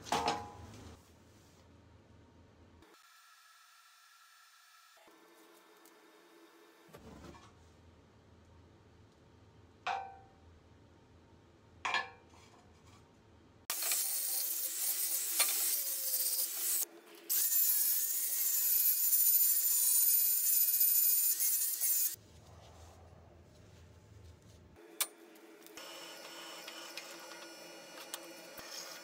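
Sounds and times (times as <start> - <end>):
angle grinder grinding steel: 13.7 - 22.2, 25.8 - 29.0.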